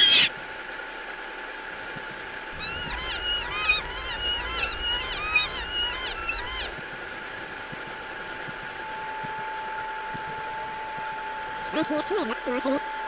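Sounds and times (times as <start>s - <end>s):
low hum: 1.8s - 13.0s
short high-pitched calls: 2.6s - 6.7s.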